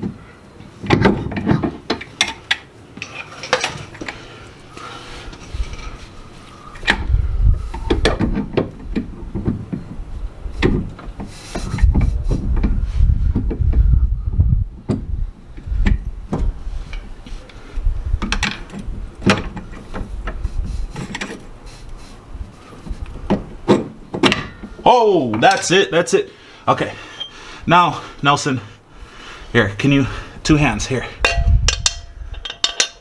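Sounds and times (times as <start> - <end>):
metal parts clicking and knocking: 0.8 - 4.2, 31.2 - 33.0
dull low thumps: 7.0 - 8.4, 11.6 - 16.9.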